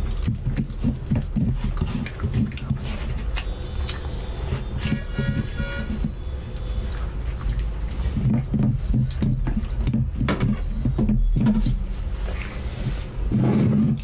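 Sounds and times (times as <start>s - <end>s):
wet chewing and lip-smacking: 0.0s - 9.9s.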